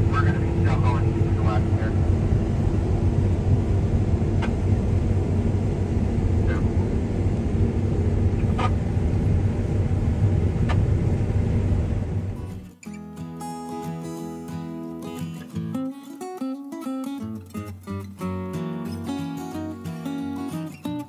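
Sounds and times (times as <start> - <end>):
heavy vehicle engine running: 0.0 - 12.7.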